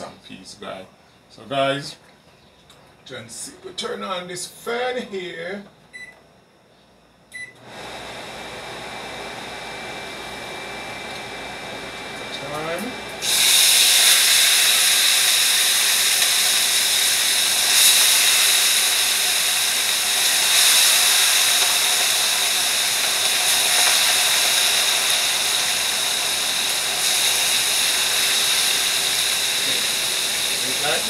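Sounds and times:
chicken sizzling in hot pot: 0:13.2 - 0:31.0.

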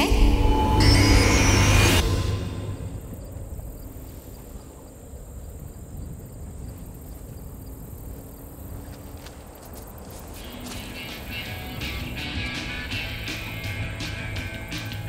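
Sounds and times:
music: 0:00.0 - 0:02.8, 0:10.4 - 0:15.0
insect chirping: 0:00.3 - 0:15.0.

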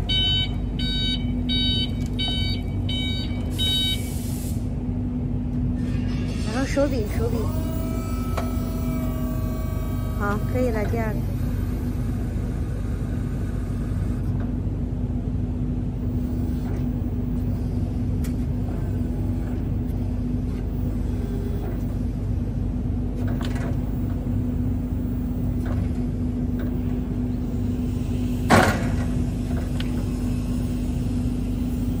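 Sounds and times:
hydraulic pump motor humming: 0:06.7 - 0:15.3, 0:16.0 - 0:32.0
sharp clunk: 0:28.5 - 0:29.1.

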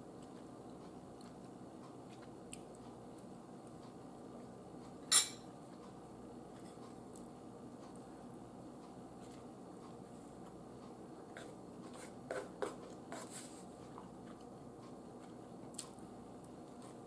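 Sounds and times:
faint room hum: 0:00.0 - 0:17.0
quiet chewing: 0:00.0 - 0:17.0
fork scraping ceramic plate: 0:11.4 - 0:13.6.

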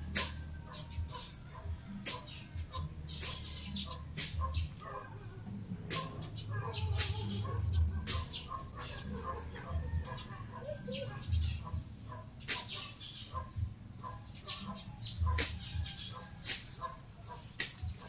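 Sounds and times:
birds chirping: 0:00.0 - 0:18.0
machete cutting grass: 0:00.1 - 0:00.4, 0:02.0 - 0:04.7, 0:05.8 - 0:07.4, 0:08.0 - 0:08.6, 0:12.4 - 0:13.0, 0:15.3 - 0:15.8, 0:16.4 - 0:18.0.

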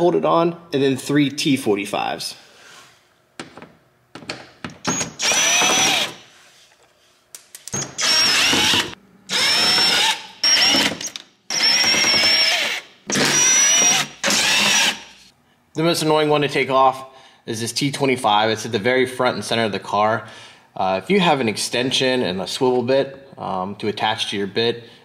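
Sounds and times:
cordless driver whining: 0:04.8 - 0:06.2, 0:07.7 - 0:15.2.

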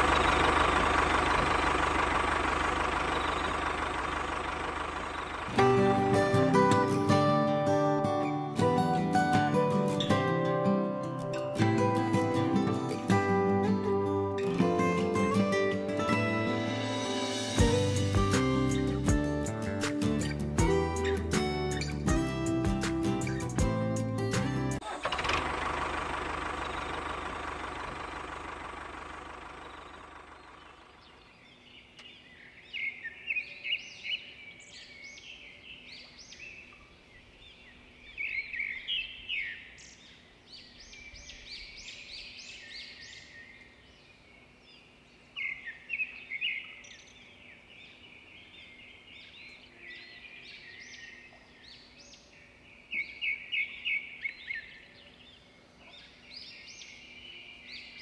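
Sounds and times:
birds chirping: 0:00.0 - 0:07.5, 0:25.4 - 0:58.0.

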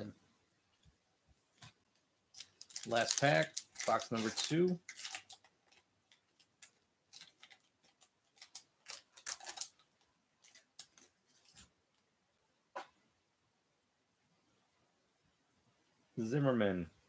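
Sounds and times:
foil wrapper crinkling: 0:02.3 - 0:09.8, 0:10.4 - 0:11.6.

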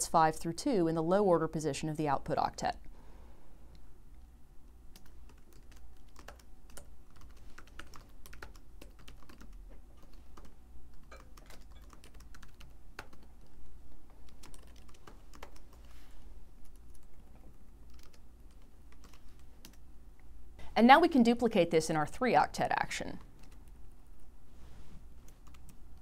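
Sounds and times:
faint low hum: 0:00.0 - 0:26.0
typing on computer keyboard: 0:04.9 - 0:13.6, 0:14.2 - 0:15.8, 0:16.6 - 0:17.2, 0:17.8 - 0:19.8, 0:23.4 - 0:23.8, 0:25.3 - 0:26.0.

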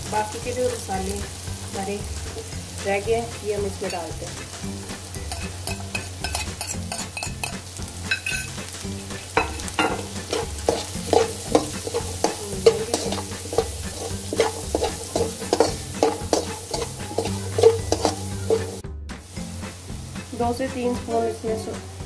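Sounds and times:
sizzle of frying in oil: 0:00.0 - 0:22.0
metal spatula scraping a frying pan: 0:05.2 - 0:18.8.

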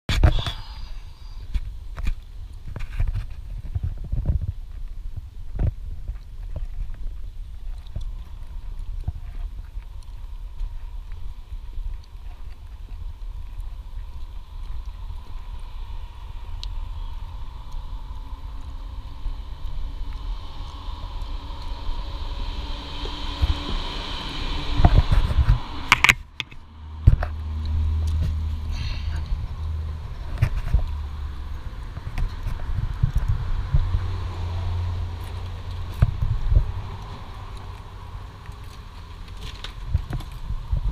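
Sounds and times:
wind and handling rumble: 0:00.1 - 0:40.9
car passing with tyre hiss: 0:13.7 - 0:40.9.

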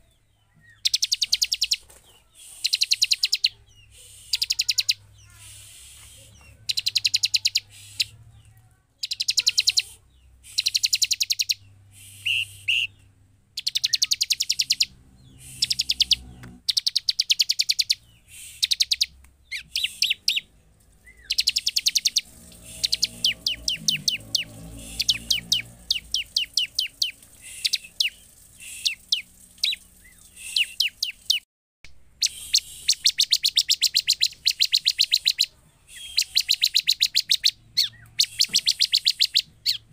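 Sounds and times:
bird calling high chip notes: 0:09.0 - 0:13.0, 0:13.6 - 0:31.4, 0:32.2 - 0:39.9.

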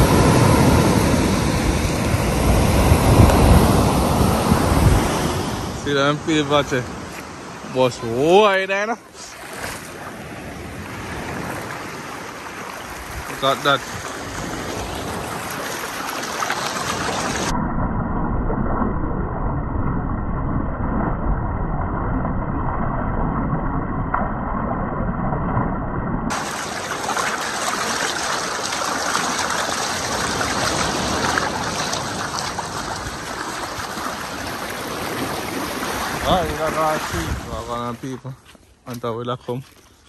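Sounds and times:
river rushing over gravel: 0:00.0 - 0:17.5, 0:26.3 - 0:38.3.

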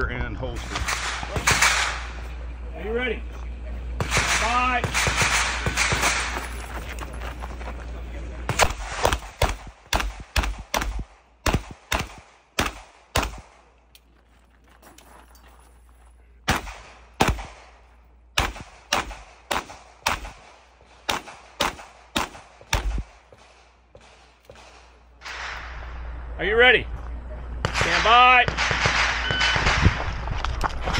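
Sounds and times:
handgun shots with echo: 0:04.0 - 0:06.5, 0:08.5 - 0:13.7, 0:16.4 - 0:17.8, 0:18.4 - 0:25.7.

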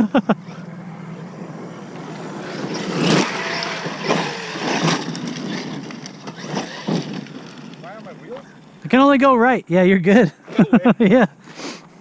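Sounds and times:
electric motor whine: 0:00.0 - 0:08.8
tyre noise on dirt: 0:01.3 - 0:09.0.

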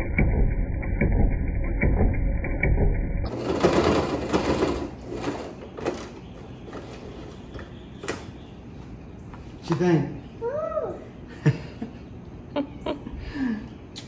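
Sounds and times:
sewing machine stitching: 0:03.3 - 0:06.1.

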